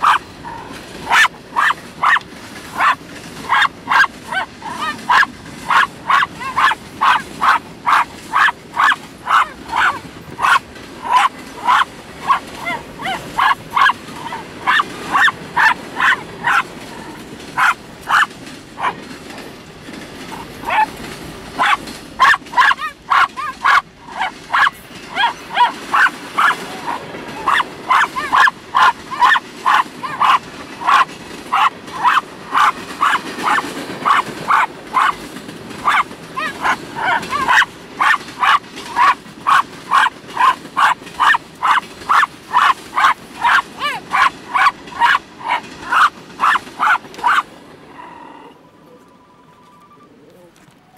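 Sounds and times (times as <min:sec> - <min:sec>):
small dog yapping: 0:00.0 - 0:19.0, 0:20.3 - 0:21.0, 0:21.6 - 0:35.2, 0:35.8 - 0:47.5.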